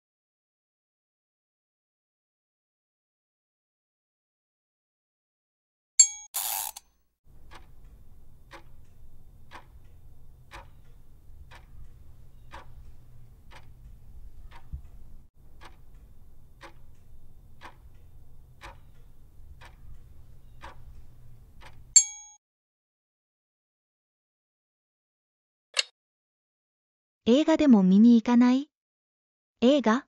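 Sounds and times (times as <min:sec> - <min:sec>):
low steady hum: 0:07.3 - 0:22.0
clock ticking: 0:07.3 - 0:22.3.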